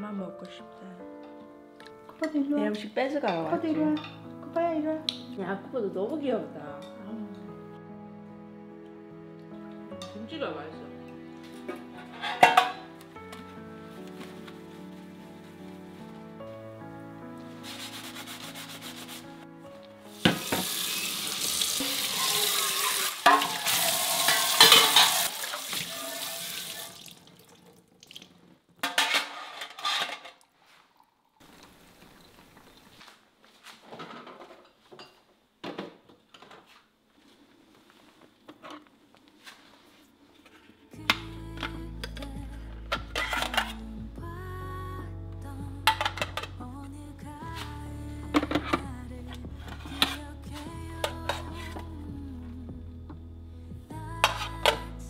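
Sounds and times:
soft background music: 0.0s - 27.0s, 39.8s - 55.0s
metal containers clinking: 11.6s - 13.0s, 21.8s - 27.1s, 28.8s - 30.5s, 42.9s - 43.9s.

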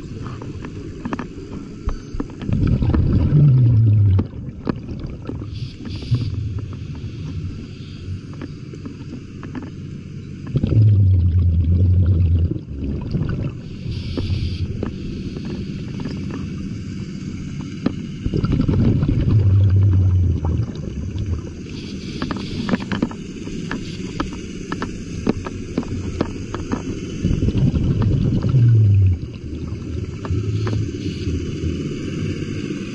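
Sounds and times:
crackle of water noise: 0.0s - 32.9s
bubbling exhalations underwater: 2.4s - 7.7s, 10.4s - 14.8s, 18.2s - 22.6s, 27.1s - 32.3s
hissing inhale through regulator: 5.4s - 9.2s, 10.5s - 17.1s, 18.1s - 25.4s, 26.0s - 32.9s.

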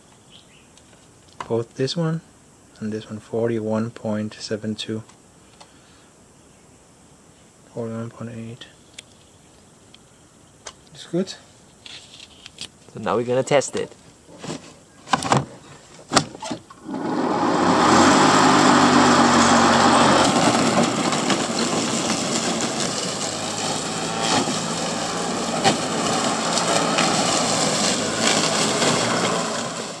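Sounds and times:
electric lawn mower running: 16.8s - 30.0s.

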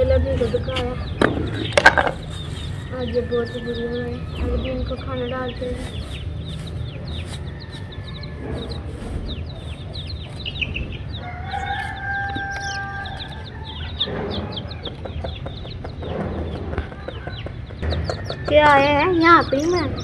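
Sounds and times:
chicks peeping: 0.0s - 20.0s
rooster crowing: 7.1s - 9.0s, 11.1s - 14.9s, 16.6s - 19.2s.

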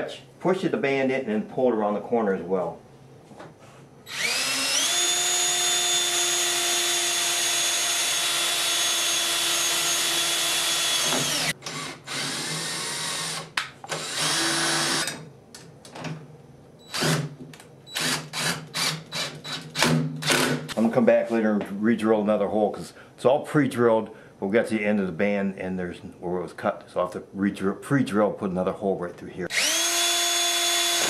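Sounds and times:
cordless drill whining: 4.1s - 15.2s, 16.9s - 17.3s, 17.9s - 19.6s, 29.5s - 31.0s.

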